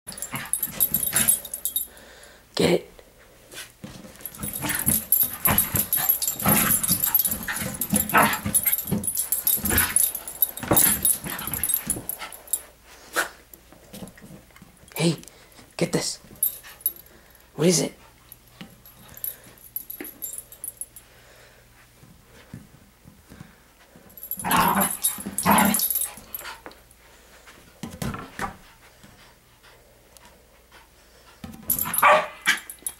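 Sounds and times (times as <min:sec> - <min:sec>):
dog barking: 0:32.0 - 0:32.6.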